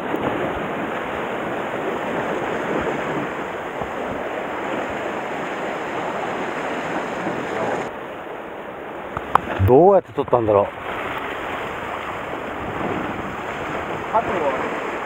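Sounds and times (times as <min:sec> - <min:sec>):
sea surf rushing: 0:00.0 - 0:15.0
wind: 0:00.0 - 0:15.0.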